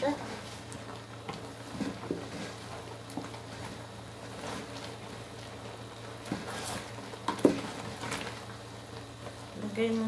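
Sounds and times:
wooden spatula stirring stew: 0:00.0 - 0:09.4
faint scrapes in a pot: 0:01.6 - 0:05.0, 0:06.2 - 0:08.4.

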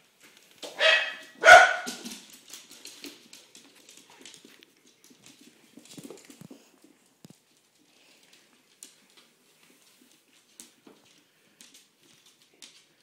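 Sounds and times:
dogs scuffling: 0:00.0 - 0:13.0
claws clicking on laminate floor: 0:00.2 - 0:13.0
young dog barking: 0:00.8 - 0:02.0.

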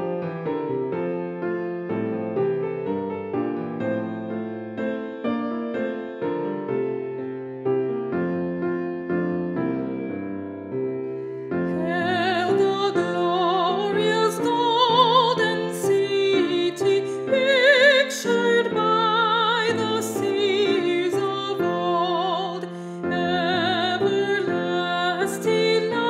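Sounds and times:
piano chords: 0:00.0 - 0:26.0
woman singing a hymn: 0:11.8 - 0:26.0.

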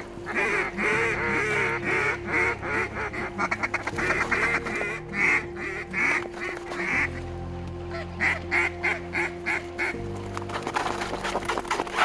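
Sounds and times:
waterfowl quacking and honking: 0:00.0 - 0:07.3, 0:07.9 - 0:10.0.

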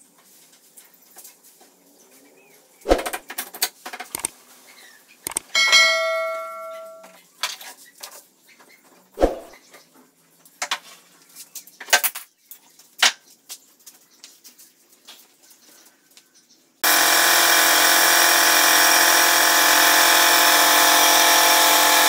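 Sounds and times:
scattered clicks and knocks: 0:03.1 - 0:04.3, 0:05.3 - 0:07.1
ringing multi-pitched tone: 0:05.6 - 0:07.1.

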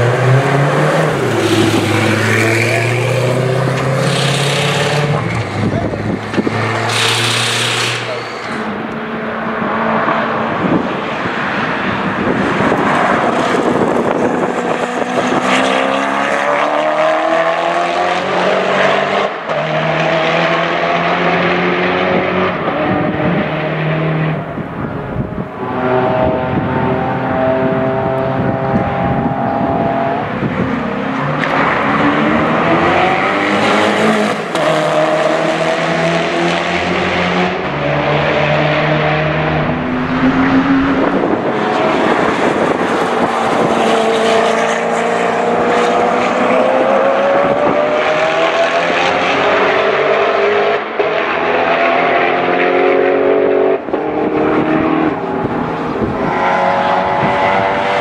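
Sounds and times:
car engine accelerating hard: 0:00.0 - 0:58.0.

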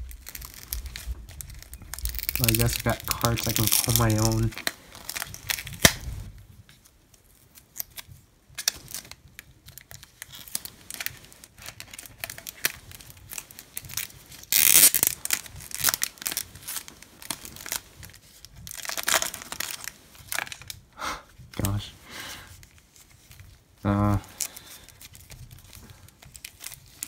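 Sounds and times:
plastic wrap crinkling and tearing: 0:00.0 - 0:27.0.

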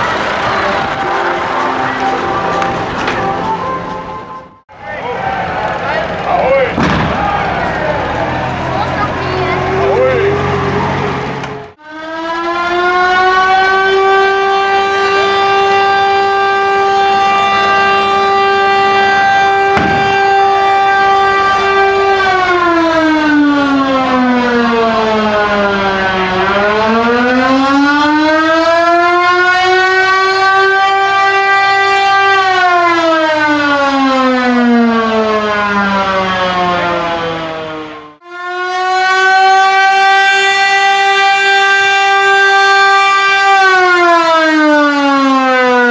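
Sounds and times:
sharp bang: 0:06.8 - 0:07.5, 0:19.7 - 0:20.4
buzzy siren: 0:07.3 - 0:11.2, 0:11.8 - 0:45.9.

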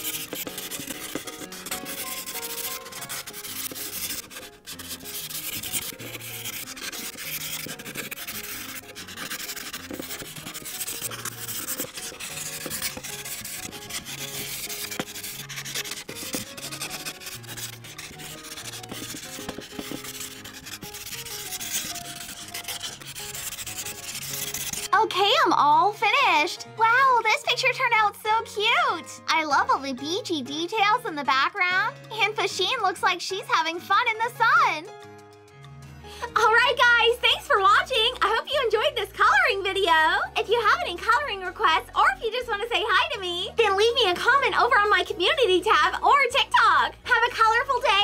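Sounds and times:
marker scratching on paper: 0:00.0 - 0:25.0.

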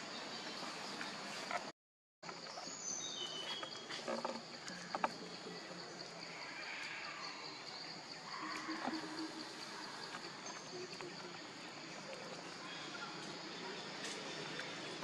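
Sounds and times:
high insect drone: 0:03.5 - 0:15.0.

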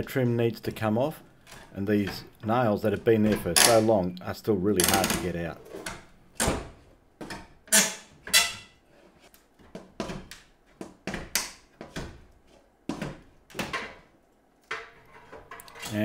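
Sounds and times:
timber trim knocking and creaking: 0:01.4 - 0:04.0.

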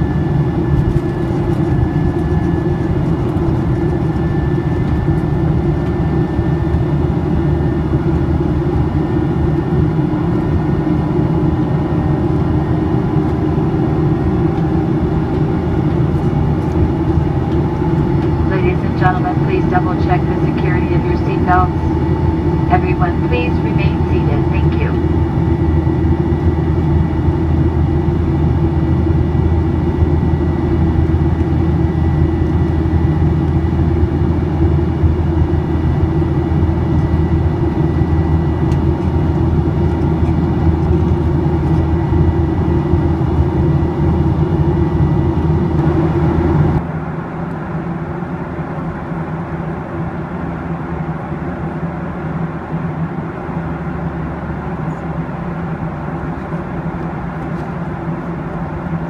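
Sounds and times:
airplane cabin jet noise: 0:00.0 - 0:59.0.

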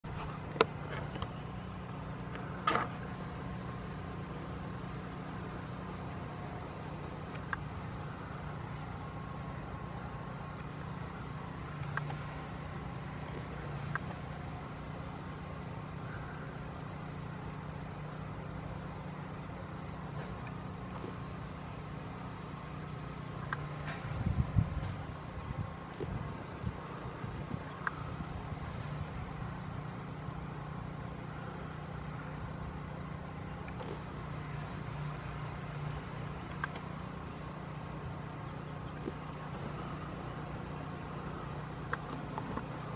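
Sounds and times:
low engine hum: 0:00.0 - 0:42.9
faint clicks: 0:07.2 - 0:07.8, 0:10.6 - 0:14.6, 0:23.4 - 0:24.1, 0:27.5 - 0:28.1, 0:33.6 - 0:37.1, 0:41.8 - 0:42.9.

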